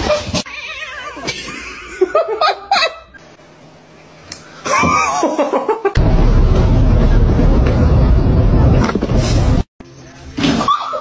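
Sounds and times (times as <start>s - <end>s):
people laughing: 4.7s - 6.0s.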